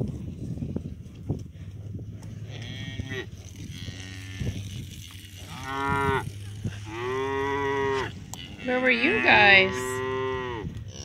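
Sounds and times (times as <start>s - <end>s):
cattle mooing: 2.4s - 11.0s.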